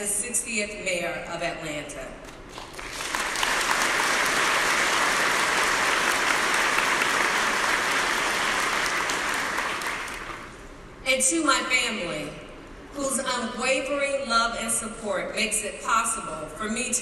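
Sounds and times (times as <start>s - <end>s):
audience applauding: 2.5s - 10.6s.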